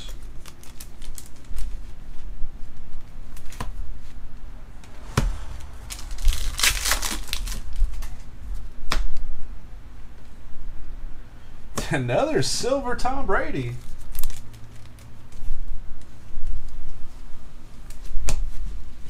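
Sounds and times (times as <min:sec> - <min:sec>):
cards and wrapper rustling: 0:13.9 - 0:15.4.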